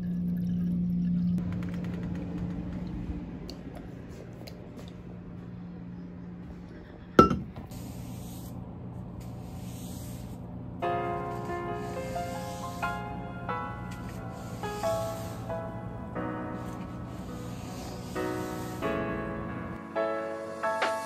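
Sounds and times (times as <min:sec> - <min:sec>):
low steady hum: 0:00.0 - 0:11.1.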